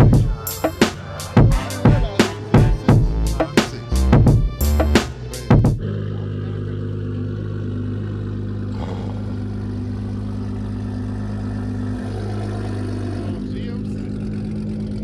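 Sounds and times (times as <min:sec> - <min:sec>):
background music: 0:00.0 - 0:05.8
car engine idling: 0:00.0 - 0:15.0.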